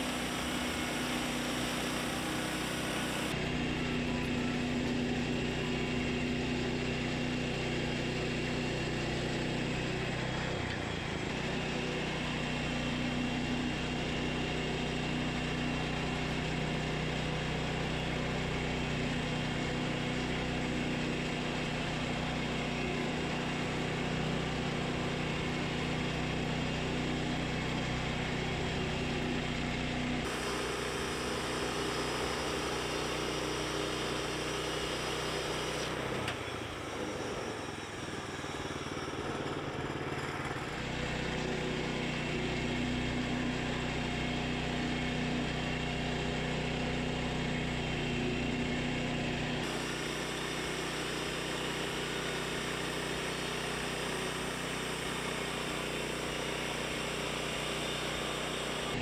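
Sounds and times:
gasoline engine running: 0:00.0 - 0:59.0.

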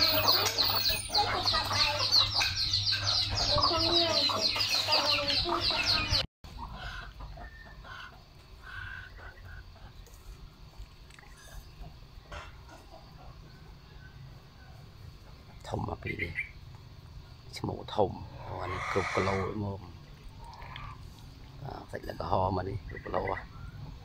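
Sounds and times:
high chirping: 0:00.0 - 0:06.3
chickens clucking: 0:00.0 - 0:24.0
quiet yard sounds: 0:00.0 - 0:24.0.

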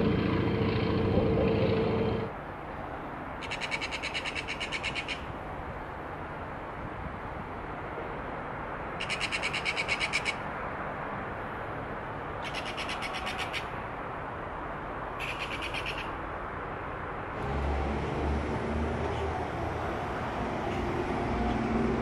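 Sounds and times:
electric train rumble: 0:00.0 - 0:02.3, 0:17.4 - 0:22.0.

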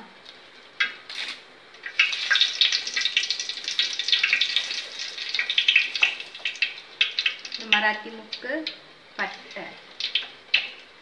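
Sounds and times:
leaves sizzling in hot oil: 0:00.2 - 0:11.0.

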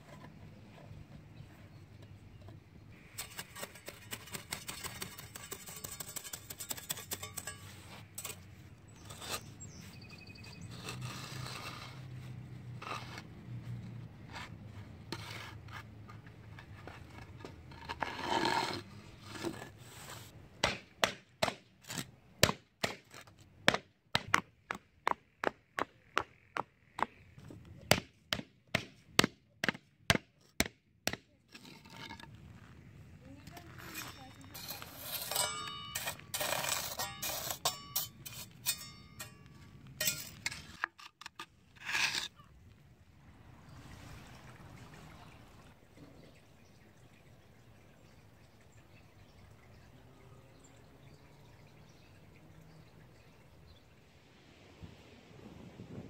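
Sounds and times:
paver scraping on sand: 0:03.0 - 0:20.4, 0:31.5 - 0:42.4.

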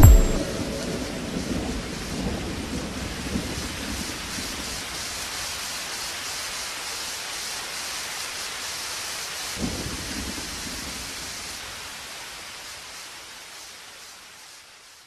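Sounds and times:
thunder rumbling: 0:00.0 - 0:04.1
rain hissing: 0:00.0 - 0:15.0.

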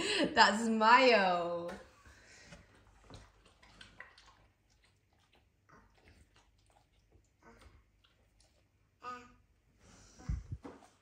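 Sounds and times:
dog chewing food: 0:02.5 - 0:09.0.

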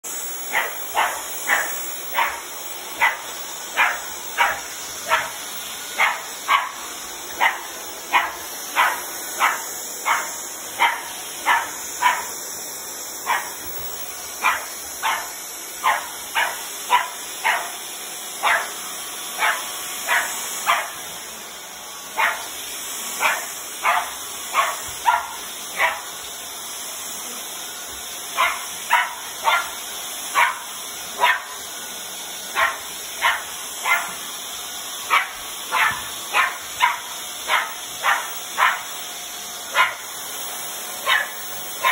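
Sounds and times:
puppy yapping: 0:28.4 - 0:29.8, 0:35.1 - 0:38.9, 0:41.1 - 0:41.9.

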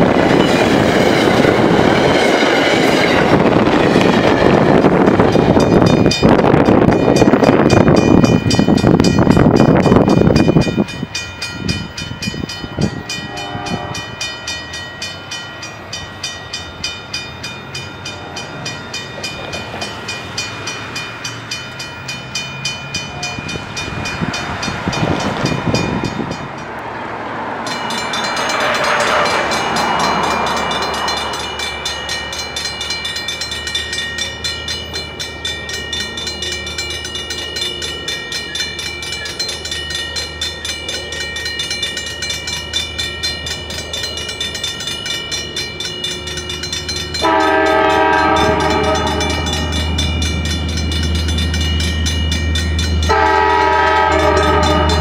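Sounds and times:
railroad crossing bell ringing: 0:00.0 - 0:55.0
train rumbling past: 0:00.0 - 0:55.0.

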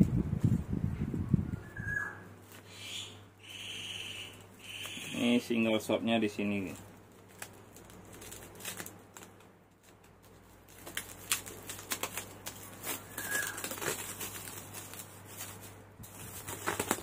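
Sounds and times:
plastic wrap crinkling: 0:04.4 - 0:17.0.

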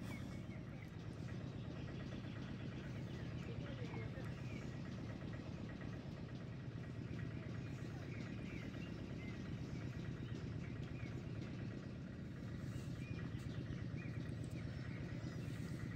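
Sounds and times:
small birds chirping: 0:00.0 - 0:15.9.

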